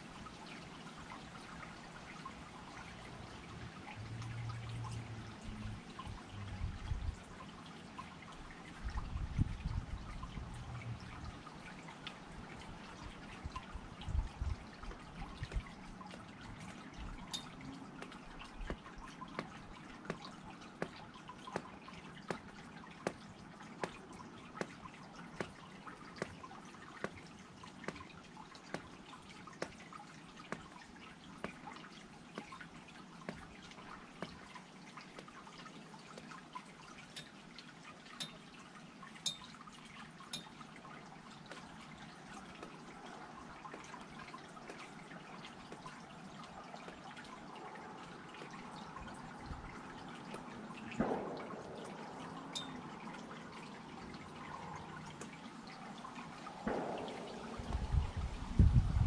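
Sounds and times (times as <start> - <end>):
garden water fountain trickling: 0.0 - 59.0
water dripping: 0.0 - 59.0.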